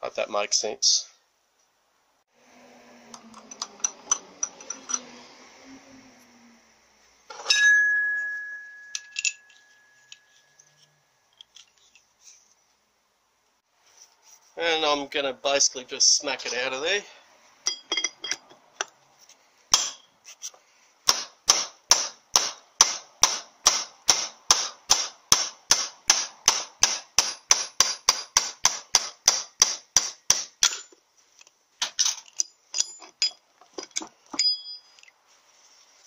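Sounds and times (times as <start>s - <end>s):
metallic ring: 3.1s - 5.2s, 7.3s - 11.2s, 17.7s - 18.5s, 34.3s - 35.1s.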